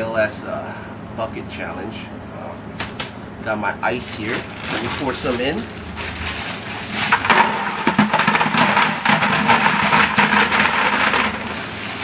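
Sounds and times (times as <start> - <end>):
ice cubes rattling into bucket: 4.3 - 12.0.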